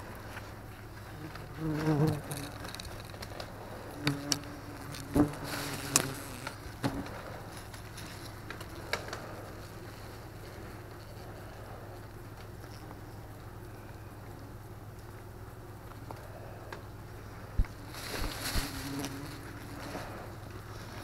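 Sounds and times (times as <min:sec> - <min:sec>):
papery nest crackling and snapping: 0:00.2 - 0:13.6, 0:17.5 - 0:21.0
wasps buzzing: 0:01.1 - 0:07.2, 0:17.8 - 0:20.8.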